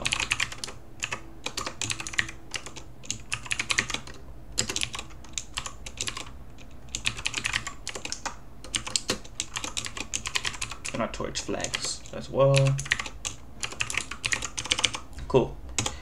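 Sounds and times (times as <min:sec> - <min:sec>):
typing on keyboard: 0:00.0 - 0:15.0, 0:15.8 - 0:16.0.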